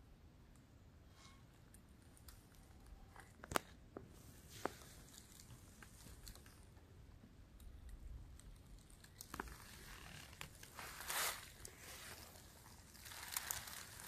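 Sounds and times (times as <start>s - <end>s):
footsteps crunching dry leaves: 9.6s - 14.0s.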